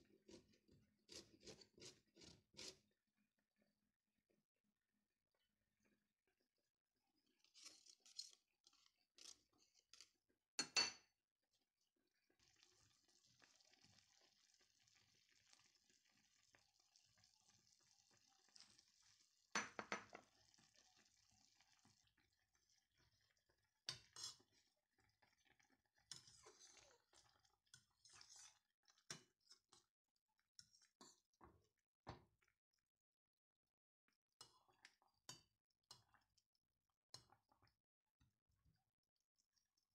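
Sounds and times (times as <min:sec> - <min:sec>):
faint simmering hiss: 0:12.2 - 0:29.6.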